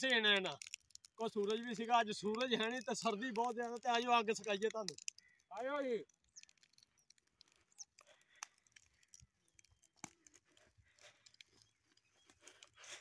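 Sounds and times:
footsteps in dry grass: 6.2 - 13.0.

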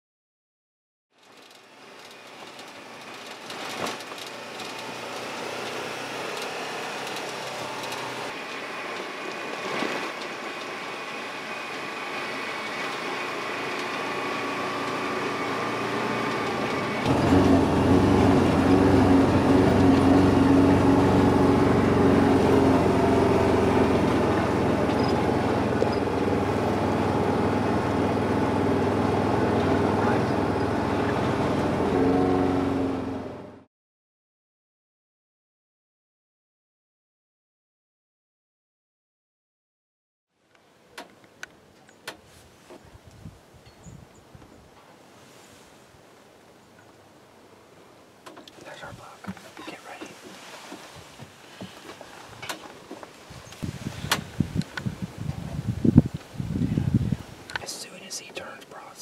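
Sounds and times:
vehicle engine running: 1.4 - 33.7.

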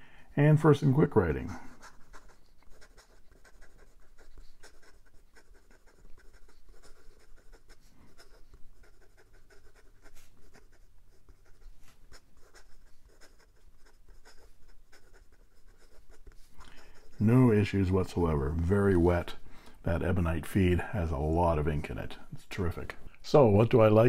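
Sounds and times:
pen nib scratching on paper: 1.6 - 17.8.

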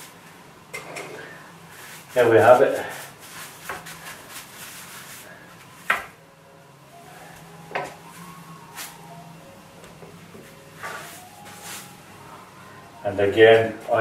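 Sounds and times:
paintbrush brushing on wood: 1.8 - 5.3, 10.8 - 11.9.

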